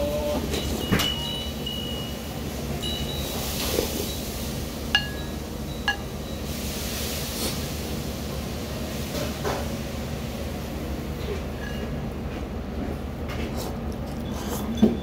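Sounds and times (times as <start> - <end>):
steady low hum: 0.0 - 14.4
spoon clinking against bowl: 5.0 - 6.2.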